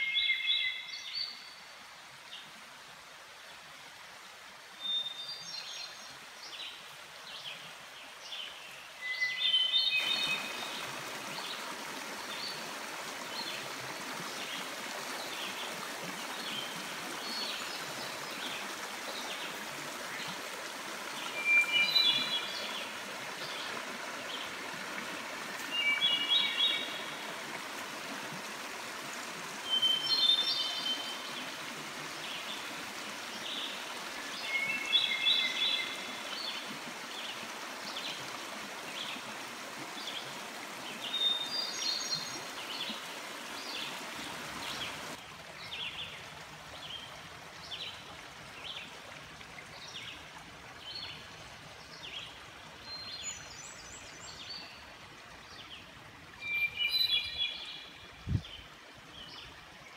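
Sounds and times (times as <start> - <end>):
songbird singing: 0.0 - 1.7, 4.8 - 13.6, 21.1 - 24.6, 25.6 - 27.3, 29.5 - 31.4, 32.2 - 36.7, 50.8 - 59.5
stream running over rocks: 0.0 - 59.9.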